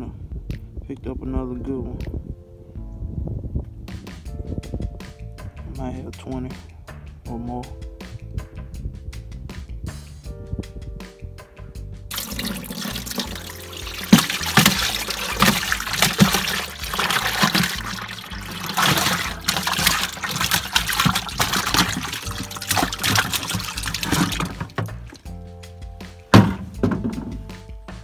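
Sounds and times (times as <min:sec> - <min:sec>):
faint background music: 0:00.0 - 0:28.0
water splashing in plastic cooler: 0:12.1 - 0:25.3, 0:26.4 - 0:27.3.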